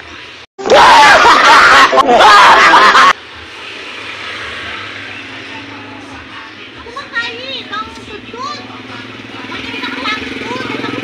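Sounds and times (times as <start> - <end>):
loud distorted laughter: 0.7 - 3.2.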